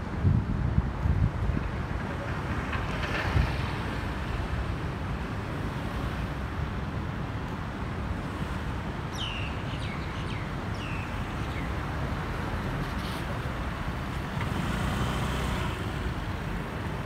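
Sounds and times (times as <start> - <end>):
bird chirping: 9.1 - 11.7.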